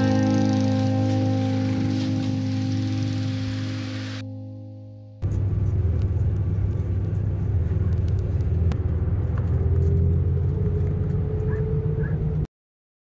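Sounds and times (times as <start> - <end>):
faint rising whine: 0.0 - 10.6
vehicle engine and road rumble: 5.2 - 12.5.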